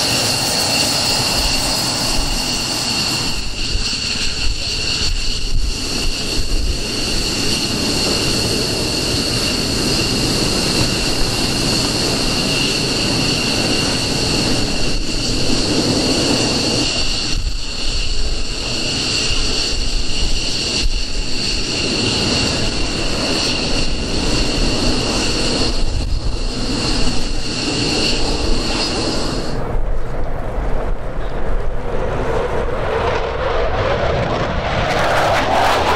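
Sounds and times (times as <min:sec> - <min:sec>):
jet engines running: 0:00.0 - 0:35.9.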